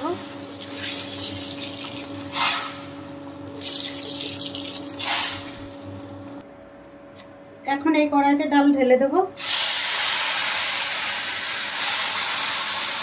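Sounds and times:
food sizzling in hot oil: 0.0s - 6.2s, 9.4s - 13.0s.

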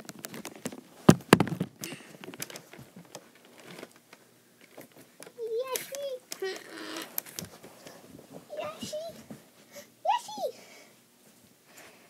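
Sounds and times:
camera handling thumps: 1.1s - 1.7s.

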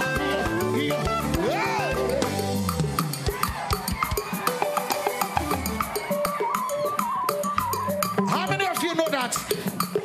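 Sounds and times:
bass notes: 0.0s - 3.0s
drum kit beat: 0.0s - 10.0s
gospel band music: 0.0s - 10.0s.

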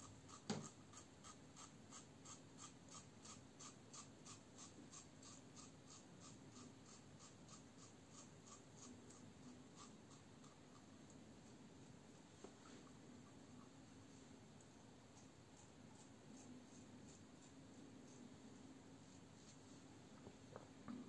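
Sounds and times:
razor scraping stubble: 0.3s - 11.6s.

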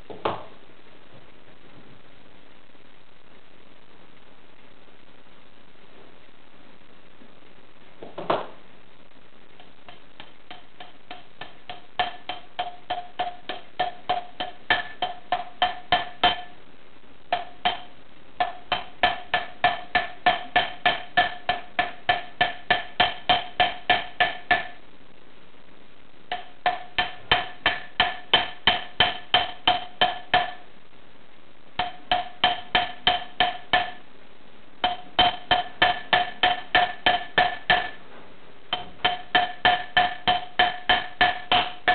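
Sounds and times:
hammer striking metal ring: 9.9s - 16.5s, 17.4s - 24.8s, 26.3s - 30.6s, 31.8s - 34.0s, 34.8s - 38.0s, 38.7s - 41.9s.

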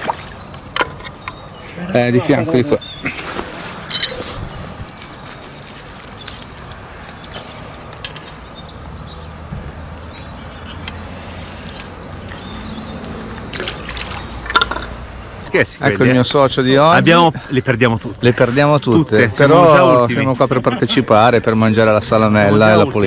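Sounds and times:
water dripping and trickling: 12.2s - 15.2s.

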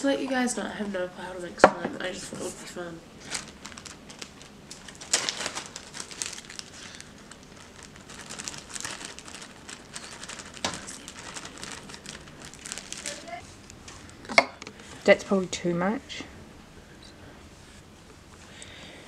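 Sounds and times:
plastic bag crinkling: 3.2s - 15.0s.

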